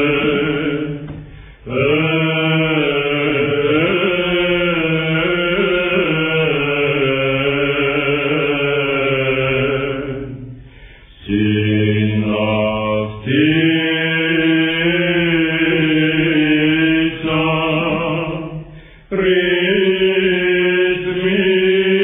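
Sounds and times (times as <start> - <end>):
men chanting: 0.0 - 10.5, 11.3 - 22.0.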